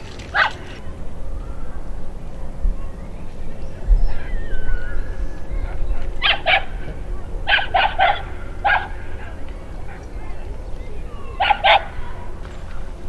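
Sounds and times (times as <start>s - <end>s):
dog barking: 0.2s - 0.8s, 6.2s - 9.4s, 11.4s - 12.3s.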